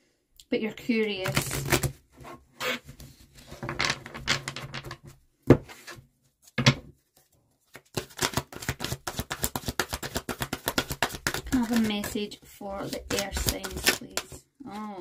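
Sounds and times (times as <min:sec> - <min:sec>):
cards rustling: 0:07.1 - 0:14.9
cards clicking while shuffled: 0:07.7 - 0:12.2, 0:12.9 - 0:14.4.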